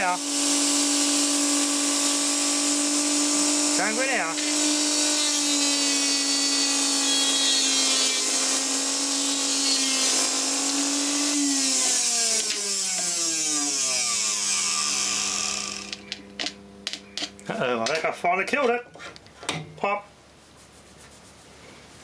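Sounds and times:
electric motor whining: 0:00.0 - 0:17.3.

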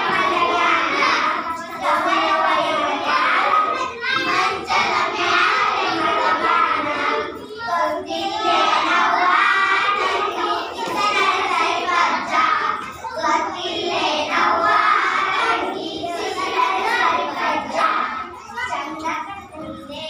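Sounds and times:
children singing: 0:00.0 - 0:20.0.

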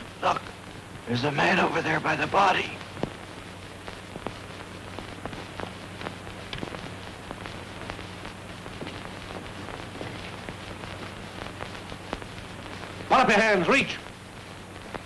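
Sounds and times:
crackles and pops: 0:00.0 - 0:15.0
film soundtrack hiss and hum: 0:00.0 - 0:15.0.

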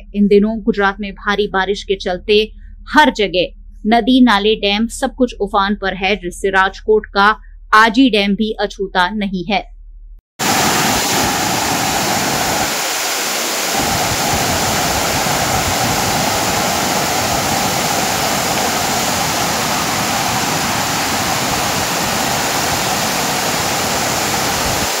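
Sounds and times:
water pouring over dam spillway: 0:10.4 - 0:25.0.

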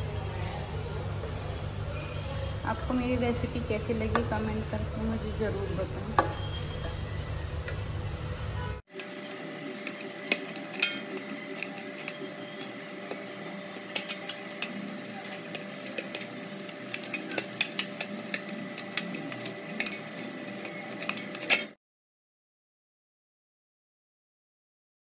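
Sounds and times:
steady background hum: 0:00.0 - 0:21.8
utensils clinking on steel plate: 0:09.0 - 0:21.8.

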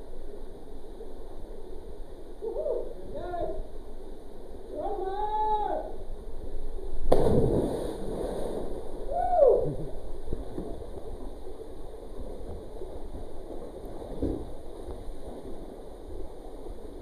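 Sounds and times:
splash into water: 0:07.1 - 0:08.8
water splashing from swimming: 0:07.1 - 0:09.0.

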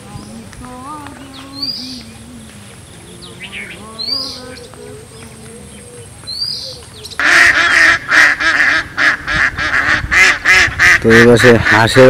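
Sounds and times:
ducks quacking loudly: 0:07.2 - 0:12.0.

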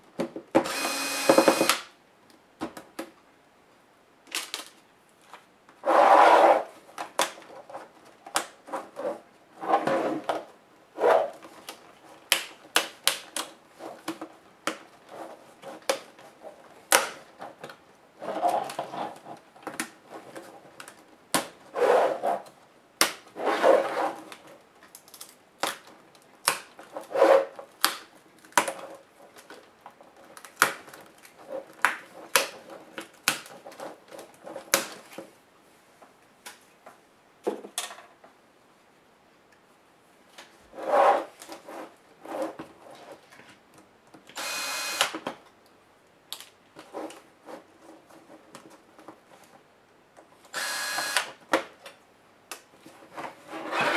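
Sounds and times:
cordless screwdriver whirring: 0:00.7 - 0:01.8, 0:44.4 - 0:45.1, 0:50.5 - 0:51.3.

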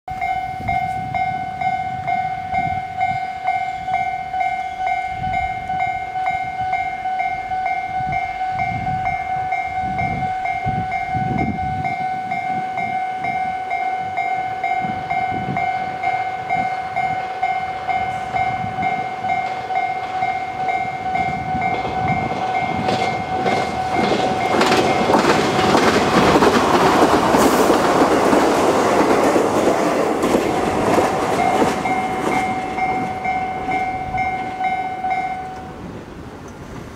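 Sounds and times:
level crossing warning bell: 0:00.1 - 0:27.1, 0:29.9 - 0:36.0
electric train passing: 0:00.1 - 0:36.9
wheels clacking over rail joints: 0:15.6 - 0:36.9.

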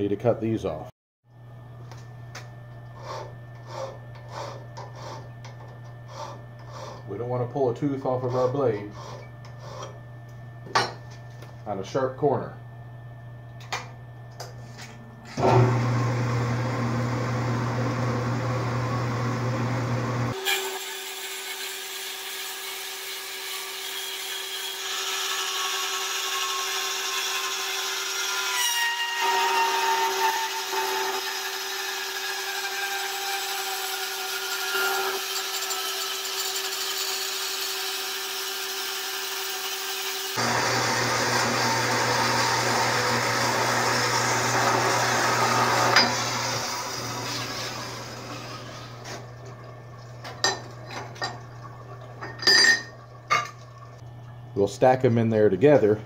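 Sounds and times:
metal-cutting bandsaw running: 0:03.0 - 0:09.9, 0:15.4 - 0:49.1.

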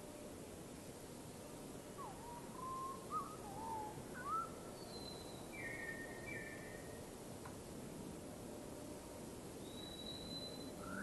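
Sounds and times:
faint steady hiss: 0:00.0 - 0:11.0
bird whistling: 0:02.0 - 0:06.6, 0:09.7 - 0:11.0.

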